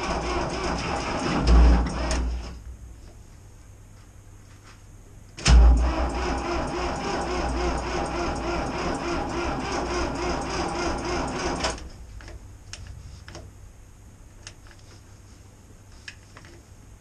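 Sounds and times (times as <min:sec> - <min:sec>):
starter cranking diesel engine: 0:00.0 - 0:02.6, 0:05.4 - 0:11.9.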